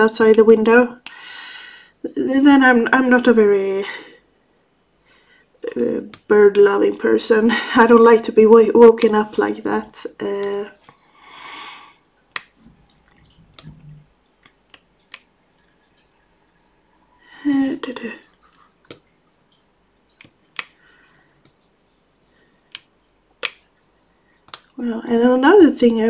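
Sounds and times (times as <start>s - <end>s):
breathy exhale: 11.0s - 12.0s
breathy vocal sound: 11.0s - 12.0s
small plastic clicks and taps: 12.3s - 15.4s, 20.1s - 20.8s, 22.7s - 23.7s, 24.4s - 24.8s.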